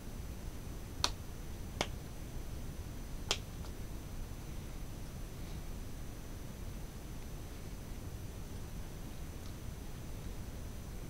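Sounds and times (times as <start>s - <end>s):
hands slapping together: 1.0s - 1.2s, 3.3s - 3.8s.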